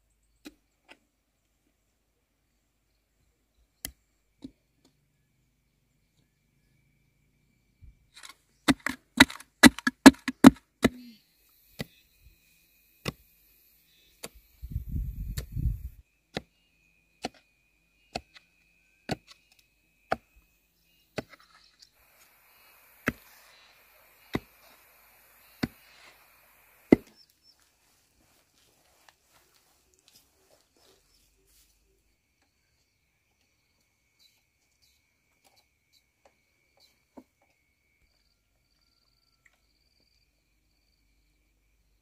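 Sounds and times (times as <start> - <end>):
hoe chopping into dry soil: 8.2 - 11.1, 22.9 - 27.3.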